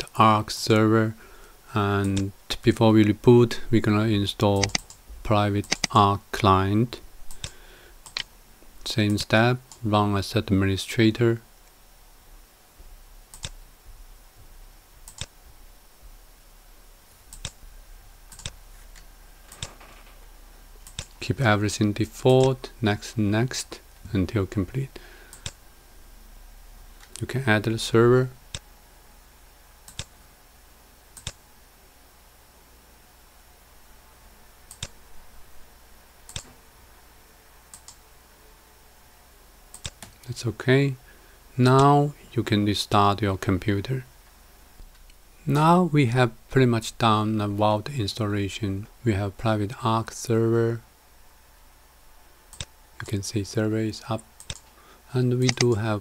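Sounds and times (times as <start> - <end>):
computer mouse clicking: 4.6 - 5.0, 5.6 - 6.0, 7.3 - 8.3, 13.3 - 13.6, 15.1 - 15.4, 17.3 - 17.6, 18.3 - 19.8, 20.8 - 21.2, 25.3 - 25.6, 29.9 - 30.1, 31.2 - 31.4, 34.7 - 35.0, 36.3 - 36.6, 37.7 - 38.0, 39.7 - 40.2, 52.5 - 53.2, 54.4 - 54.8, 55.4 - 55.8.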